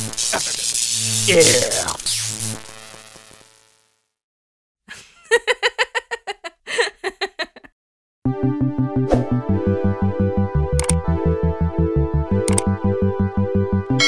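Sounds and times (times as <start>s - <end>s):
high-pitched cartoon giggle: 4.9s - 7.7s
music: 8.3s - 14.0s.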